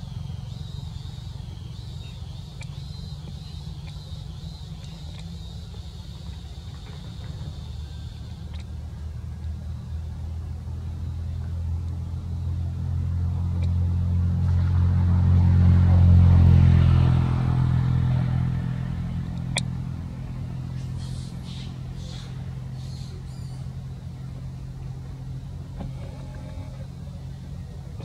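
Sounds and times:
vehicle engine passing by: 0.0s - 28.0s.

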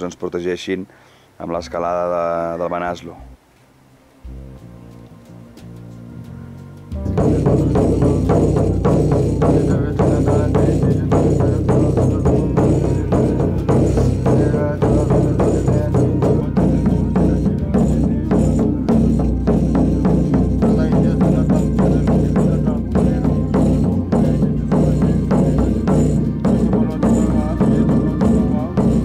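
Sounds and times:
low droning chant: 4.3s - 29.0s
frame drum beating: 6.9s - 29.0s.

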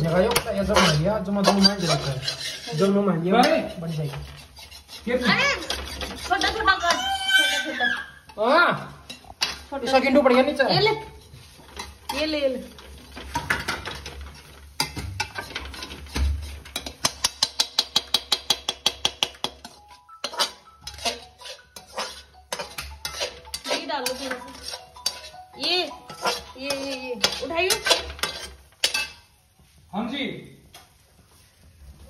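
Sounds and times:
metal spoon clinking on pan: 0.0s - 7.6s, 11.8s - 29.3s.

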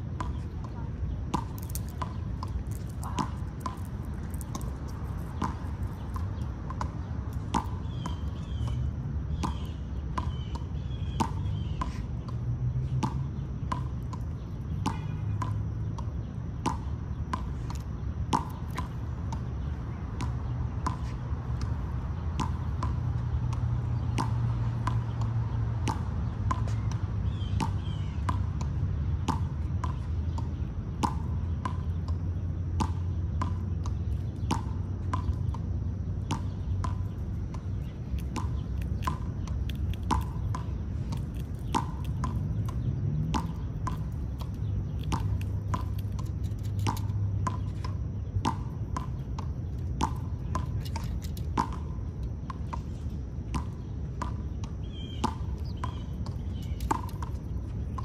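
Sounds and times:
low steady rumble: 0.0s - 58.0s
sharp ticks: 38.1s - 52.8s.

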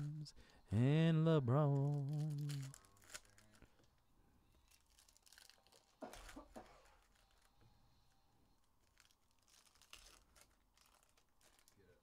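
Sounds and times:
foil wrappers crinkling: 1.4s - 4.0s, 4.6s - 7.6s, 8.7s - 12.0s.

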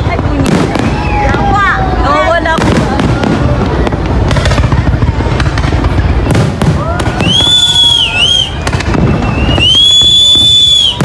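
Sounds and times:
fireworks bangs and crackles: 0.0s - 11.0s
high whistle: 6.1s - 11.0s.

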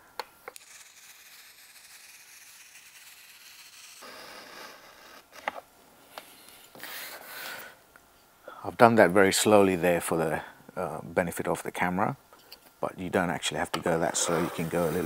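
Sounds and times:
trimmer blade scraping edging: 14.2s - 15.0s.

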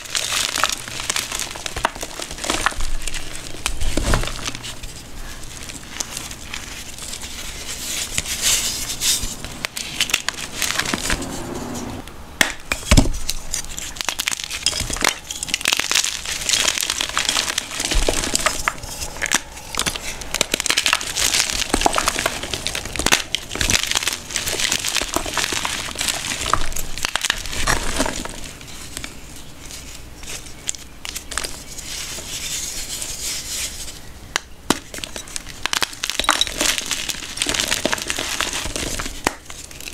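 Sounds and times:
chalk blocks cracking: 12.4s - 39.9s.

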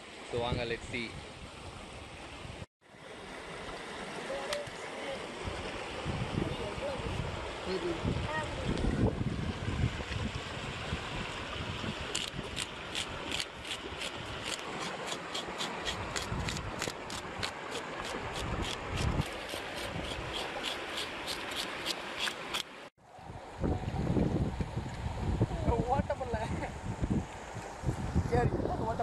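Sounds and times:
fast stream rushing: 1.6s - 22.9s
knife scraping fish scales: 12.2s - 22.7s.

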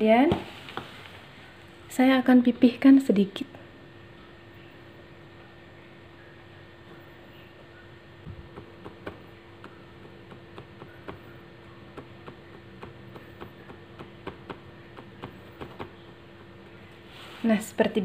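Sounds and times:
faint steady hum: 0.0s - 18.0s
fingers pressing dough clicks: 8.5s - 16.5s.

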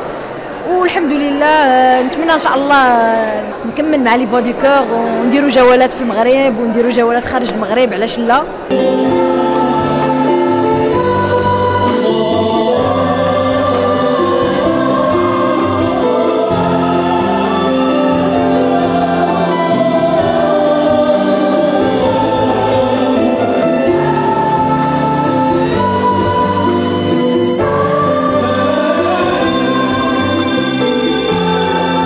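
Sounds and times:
choir singing: 8.7s - 32.0s
male soloist singing: 8.7s - 32.0s.

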